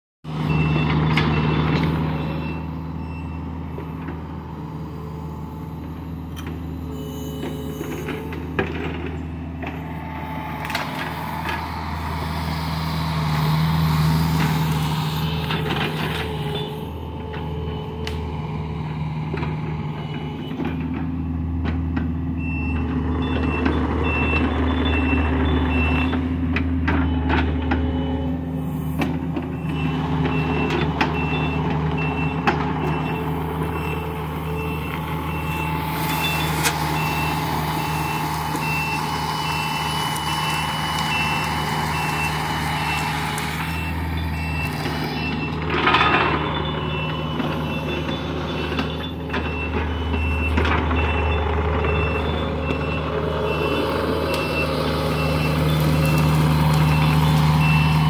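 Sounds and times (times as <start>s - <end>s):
excavator diesel engine running: 0.2s - 58.0s
travel alarm beeping: 6.3s - 8.3s, 29.6s - 45.6s, 46.3s - 58.0s.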